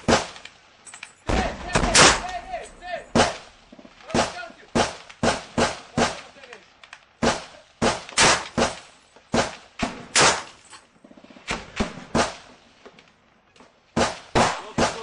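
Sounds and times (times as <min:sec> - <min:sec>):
gunshots with echo: 0:01.3 - 0:06.4, 0:07.2 - 0:10.5, 0:14.0 - 0:15.0.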